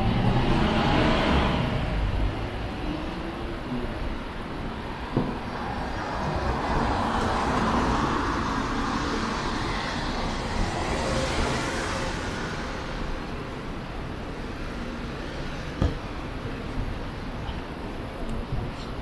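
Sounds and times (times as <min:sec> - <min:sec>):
street traffic hum: 0:00.0 - 0:19.0
car passing: 0:05.5 - 0:13.9.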